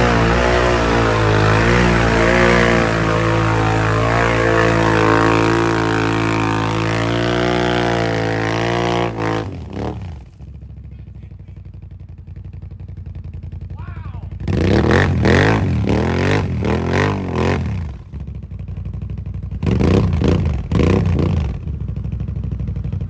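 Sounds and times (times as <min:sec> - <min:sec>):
atv engine revving: 0:00.0 - 0:11.6, 0:12.3 - 0:23.0.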